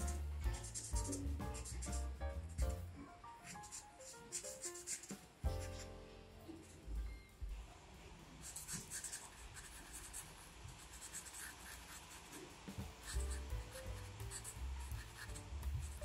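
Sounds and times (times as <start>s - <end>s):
marker scratching on paper: 0.0s - 2.7s, 3.4s - 5.9s, 8.4s - 16.0s
soft background music: 0.0s - 10.2s, 11.3s - 16.0s.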